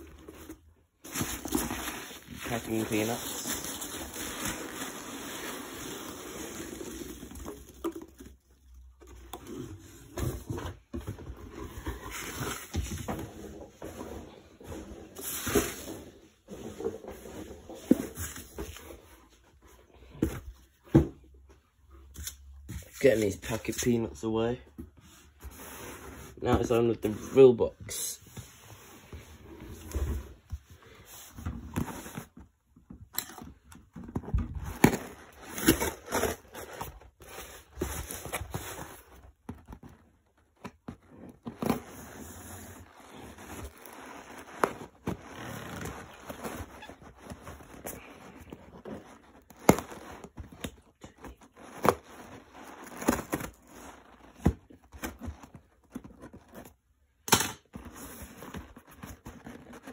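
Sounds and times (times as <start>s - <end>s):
cardboard box handled: 0.0s - 19.2s, 28.3s - 56.8s.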